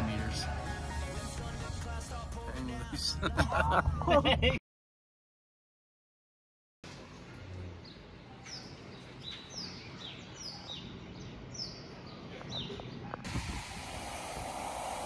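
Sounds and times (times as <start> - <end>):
birds chirping: 7.0 - 13.3.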